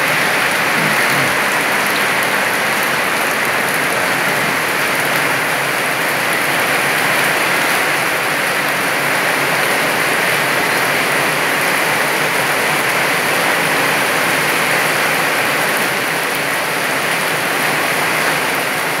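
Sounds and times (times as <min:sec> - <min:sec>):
torrential rain pouring: 0:00.0 - 0:19.0.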